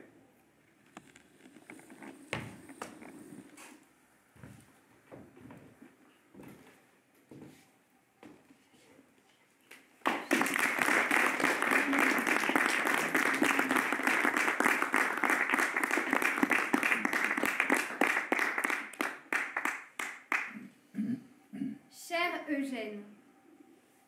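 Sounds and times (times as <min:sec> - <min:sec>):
audience applause: 0:10.0 - 0:20.6.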